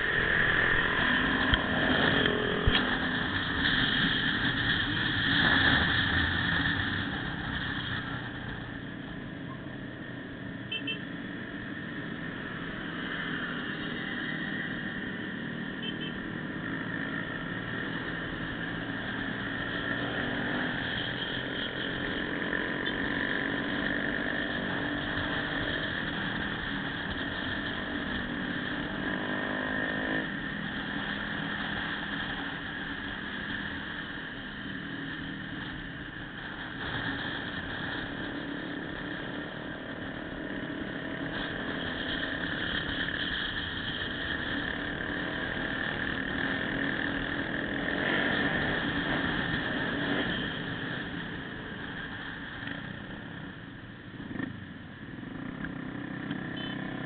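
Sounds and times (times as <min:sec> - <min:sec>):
motorcycle engine drone: 0:00.0 - 0:57.0
motorcycle engine running: 0:55.1 - 0:57.0.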